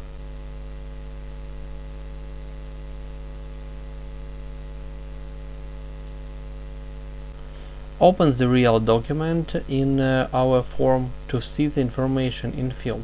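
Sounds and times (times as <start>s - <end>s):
electrical mains hum: 0.0s - 13.0s
faint hiss: 7.3s - 13.0s.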